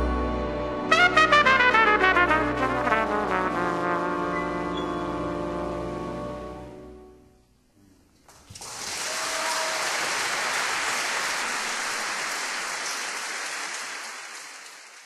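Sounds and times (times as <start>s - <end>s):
audience applauding: 8.3s - 15.0s.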